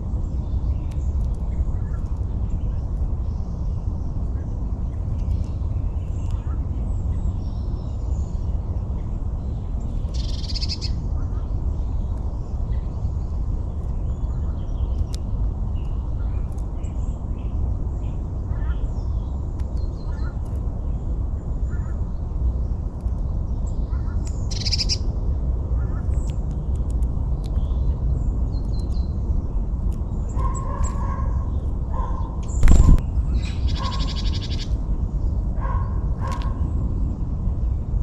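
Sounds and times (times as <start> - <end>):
rapid high birdsong: 0.0 - 38.0
small birds chirping: 0.0 - 38.0
steady low rumble: 0.0 - 38.0.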